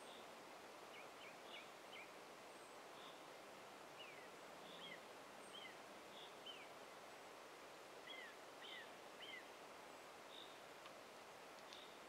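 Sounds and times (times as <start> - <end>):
soft hiss of forest ambience: 0.0 - 12.0
faint songbird chirps: 0.9 - 3.3, 4.0 - 6.8, 8.0 - 10.7, 11.6 - 12.0.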